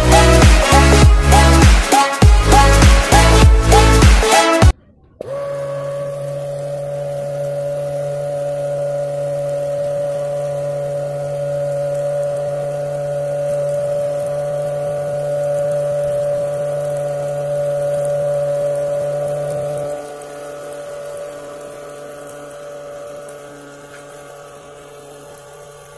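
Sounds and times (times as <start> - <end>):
small vacuum motor whining: 5.2 - 25.9.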